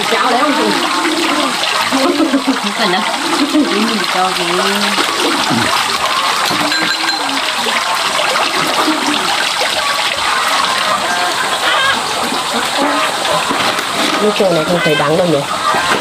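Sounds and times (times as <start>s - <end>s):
faint voices: 0.0s - 7.3s
water rushing and splashing: 0.0s - 16.0s.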